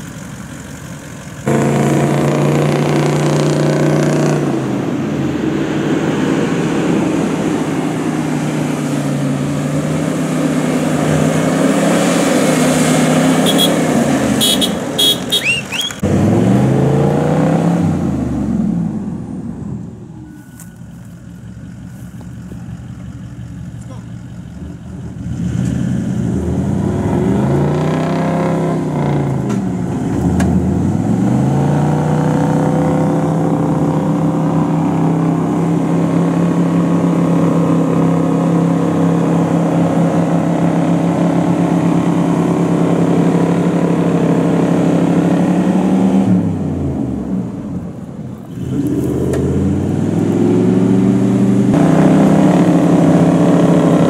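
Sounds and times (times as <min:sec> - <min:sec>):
engine revving hard: 0:01.4 - 0:18.8, 0:25.2 - 0:47.3, 0:48.5 - 0:54.0.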